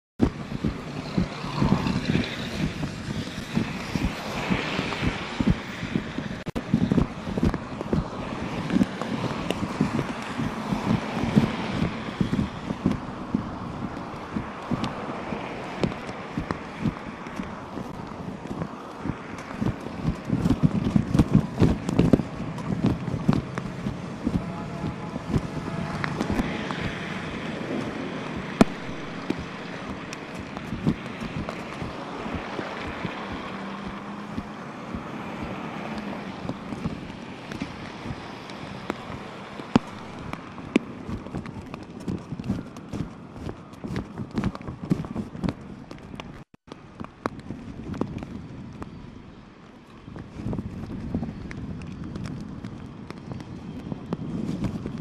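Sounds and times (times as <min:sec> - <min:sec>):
wind buffeting microphone: 0:00.2 - 0:55.0
tyres hissing on wet road: 0:00.4 - 0:41.1.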